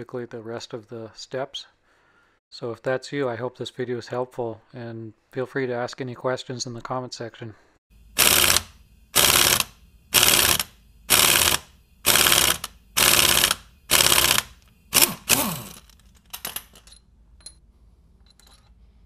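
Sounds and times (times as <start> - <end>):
impact wrench hammering: 8.2 - 16.8.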